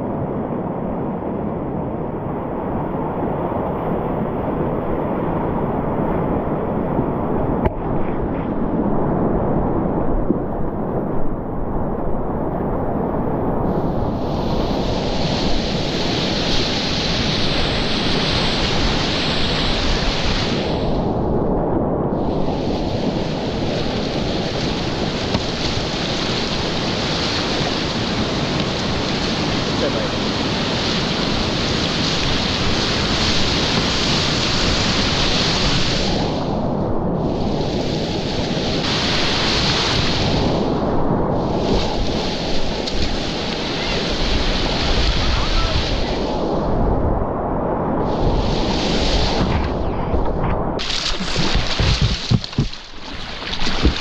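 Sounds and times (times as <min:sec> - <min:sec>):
whitewater rushing: 0:22.4 - 0:36.4, 0:38.6 - 0:40.5, 0:41.6 - 0:46.2, 0:50.8 - 0:54.0.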